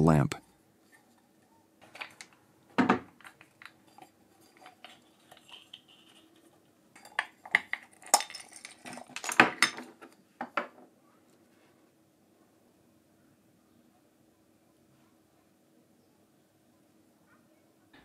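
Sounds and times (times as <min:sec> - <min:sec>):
metal parts clinking and knocking: 0:01.8 - 0:10.7
pliers set down on table: 0:02.8 - 0:03.4.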